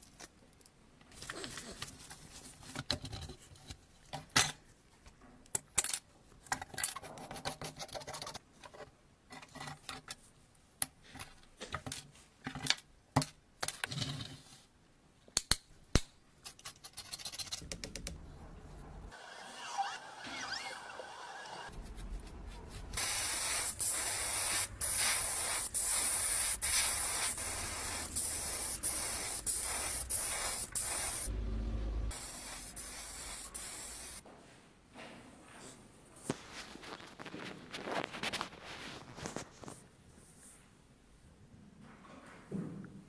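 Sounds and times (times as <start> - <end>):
steady hiss: 23.0 - 31.3, 32.1 - 34.2.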